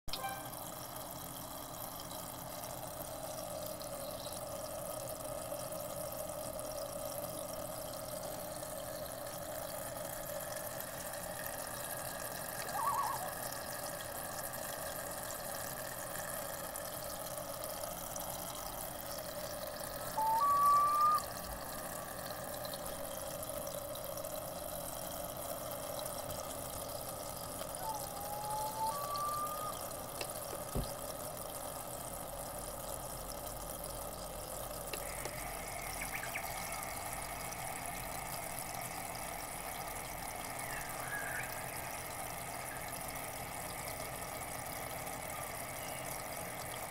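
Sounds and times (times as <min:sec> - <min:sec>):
short beep: 0:00.1 - 0:00.6
two-note beep: 0:00.1 - 0:00.6
running water from speaker: 0:00.1 - 0:46.9.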